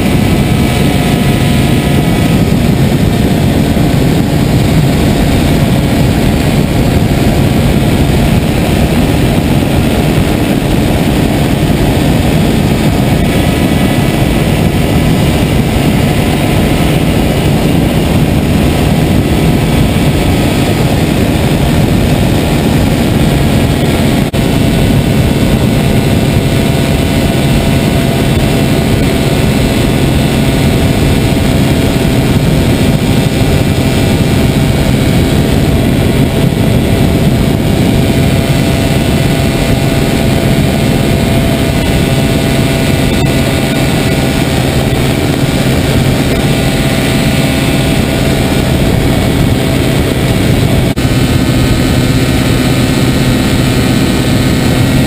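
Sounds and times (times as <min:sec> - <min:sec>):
small engine and propeller droning: 0:00.0 - 0:55.0.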